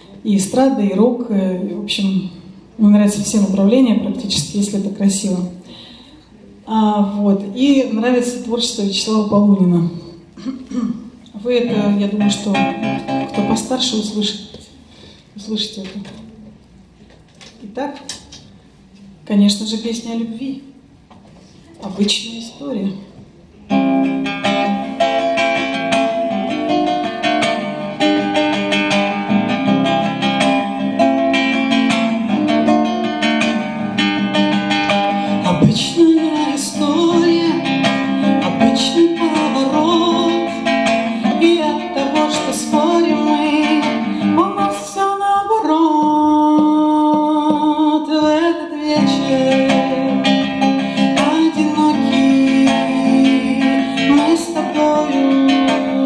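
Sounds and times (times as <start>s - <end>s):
classical guitar strumming chords: 11.6s - 14.4s, 23.6s - 56.0s
woman singing: 35.3s - 56.0s.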